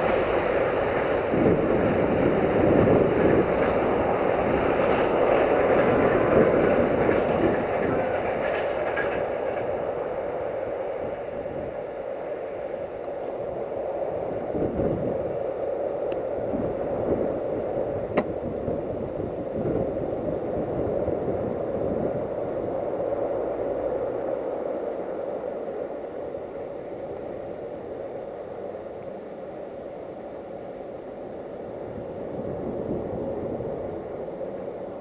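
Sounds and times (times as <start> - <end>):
freight train rumbling: 0.0 - 35.0.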